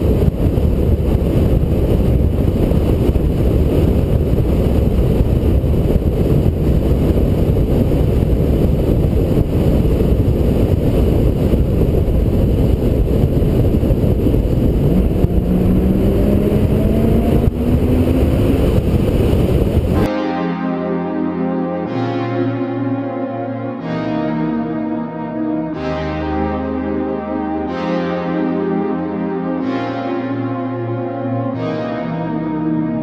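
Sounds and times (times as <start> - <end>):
road noise: 0.0 - 20.1
wind rushing over microphone: 0.0 - 33.0
car engine accelerating: 12.6 - 20.1
music: 20.0 - 33.0.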